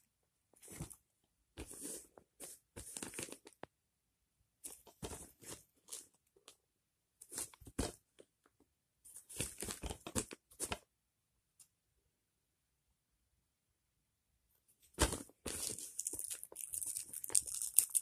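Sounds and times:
plastic shrink-wrap crinkling: 0:15.6 - 0:18.0.

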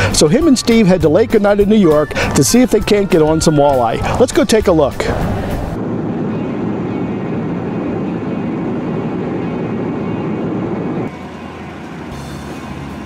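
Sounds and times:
car road and engine noise: 0:04.9 - 0:13.0.

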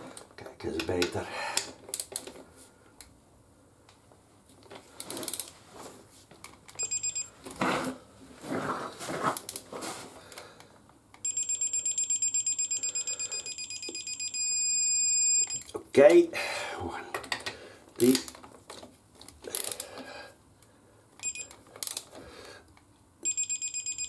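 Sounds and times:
rapid high beeps: 0:06.8 - 0:07.3, 0:11.2 - 0:15.6, 0:23.2 - 0:24.0.

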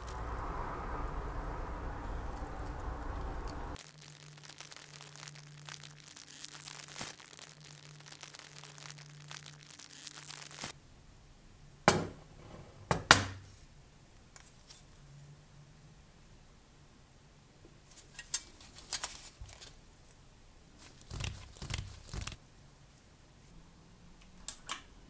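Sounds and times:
corrosion crackling and crumbling: 0:00.0 - 0:10.8.

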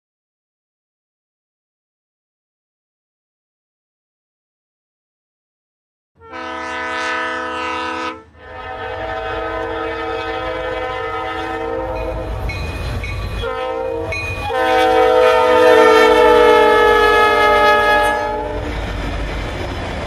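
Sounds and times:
locomotive air horn blasts: 0:06.2 - 0:12.4, 0:13.4 - 0:18.6
multi-chime train horn: 0:06.2 - 0:18.6
moving train rumble: 0:06.3 - 0:20.0.

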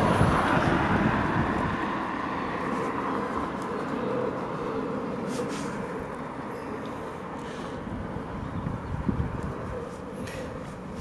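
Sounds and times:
passing traffic rushing: 0:00.0 - 0:11.0.

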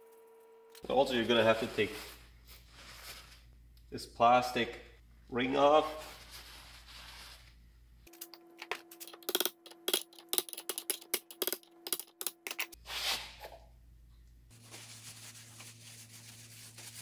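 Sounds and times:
paper towel wiping metal shaft: 0:14.6 - 0:17.0.

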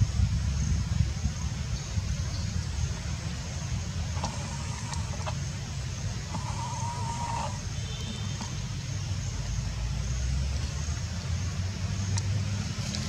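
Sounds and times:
low motor rumble: 0:00.0 - 0:13.0.

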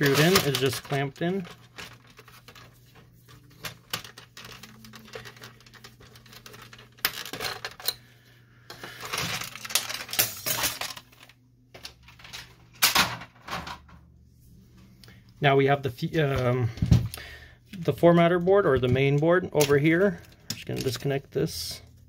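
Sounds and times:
plastic and metal parts clattering: 0:00.0 - 0:08.0, 0:08.7 - 0:14.0, 0:18.2 - 0:21.7.

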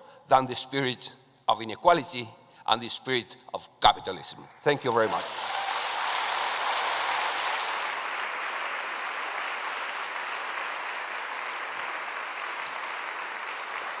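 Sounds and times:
audience applauding: 0:04.6 - 0:14.0.

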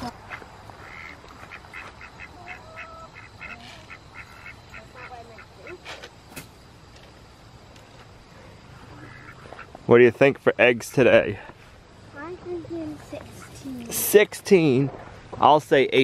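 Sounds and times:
chickens calling: 0:00.0 - 0:05.9, 0:08.2 - 0:09.8.

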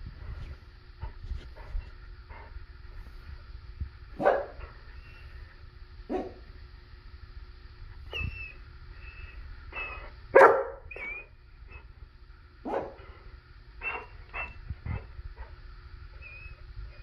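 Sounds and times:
dog barking: 0:04.2 - 0:04.6, 0:06.1 - 0:06.4, 0:10.4 - 0:11.0, 0:12.6 - 0:13.0
dog whining: 0:08.1 - 0:11.9, 0:13.8 - 0:14.6, 0:16.1 - 0:17.0.

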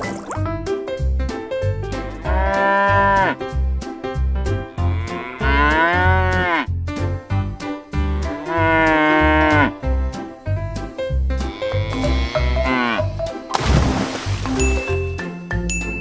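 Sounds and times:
cow mooing: 0:02.2 - 0:03.4, 0:04.7 - 0:06.7, 0:08.2 - 0:09.7, 0:11.5 - 0:13.1
background music with steady beat: 0:14.3 - 0:16.0.

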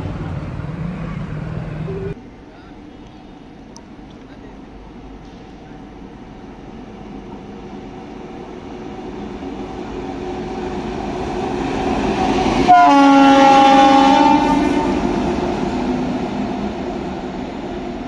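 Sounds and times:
locomotive rumbling on rails: 0:00.0 - 0:02.2, 0:02.8 - 0:18.0
locomotive horn blast: 0:12.6 - 0:15.1.

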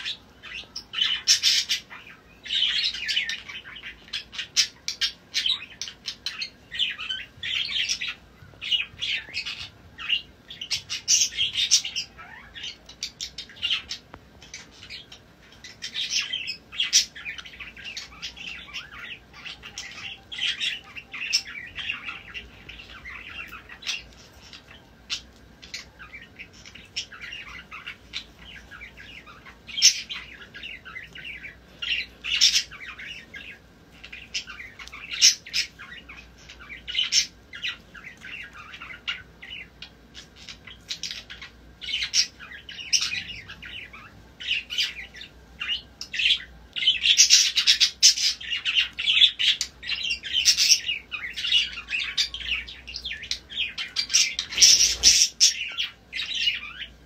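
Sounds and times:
parrots chirping and squawking: 0:00.0 - 0:57.0.

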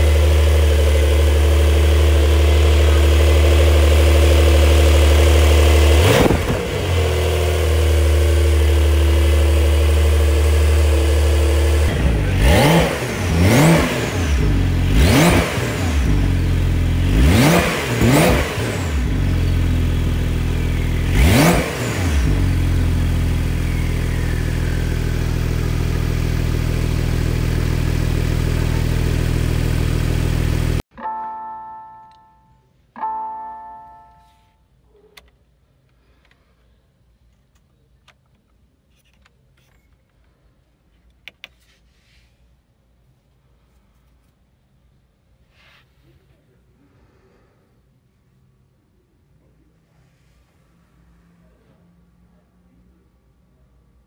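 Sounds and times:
car engine revving and idling: 0:00.0 - 0:30.8
electronic car chimes: 0:30.9 - 0:34.6.

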